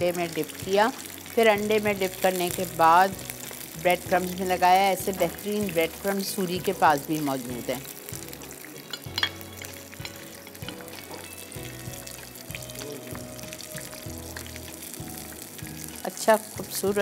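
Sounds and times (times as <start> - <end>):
fish sizzling in oil: 0.0 - 17.0.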